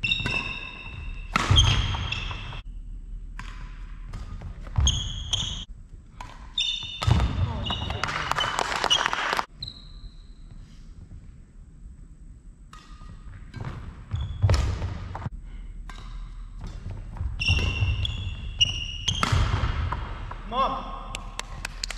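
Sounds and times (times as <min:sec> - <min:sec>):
shoe squeaks: 0:00.0 - 0:02.7, 0:04.8 - 0:05.7, 0:06.6 - 0:10.8, 0:14.1 - 0:14.8, 0:17.3 - 0:19.4
racket hitting shuttlecock: 0:00.1 - 0:02.6, 0:03.3 - 0:07.8, 0:12.6 - 0:20.5.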